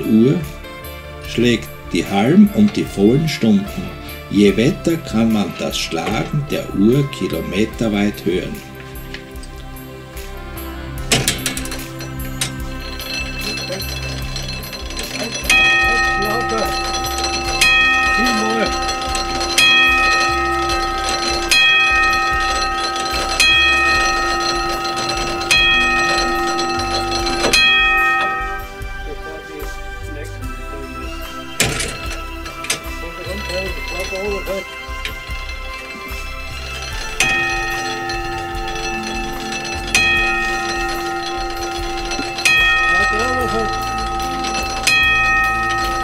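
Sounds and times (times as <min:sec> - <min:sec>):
clock bell striking: 0:00.0 - 0:46.0.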